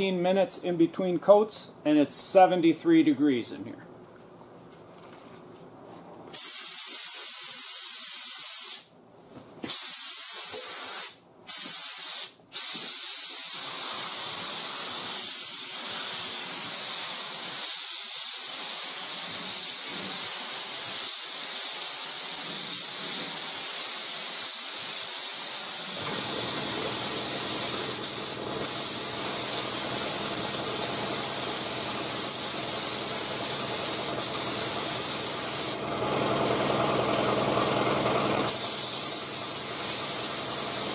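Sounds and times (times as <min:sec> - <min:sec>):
spray gun hissing: 0:06.4 - 0:08.9, 0:09.7 - 0:35.8, 0:38.5 - 0:40.9
low motor hum: 0:35.8 - 0:38.5.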